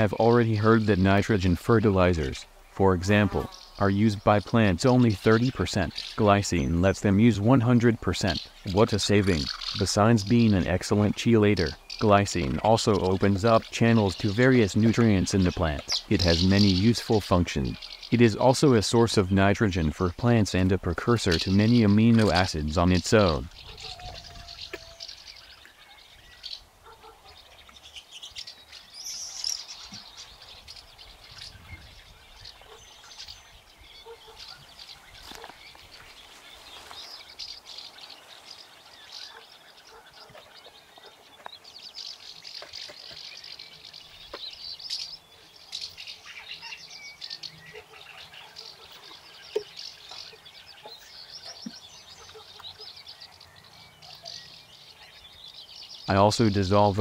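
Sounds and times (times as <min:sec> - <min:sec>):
birds chirping and singing: 0:00.0 - 0:57.0.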